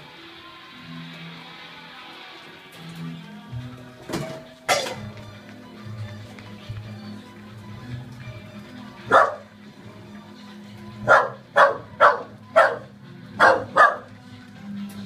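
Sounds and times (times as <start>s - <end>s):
dog barking: 9.1s - 9.6s, 11.0s - 14.2s.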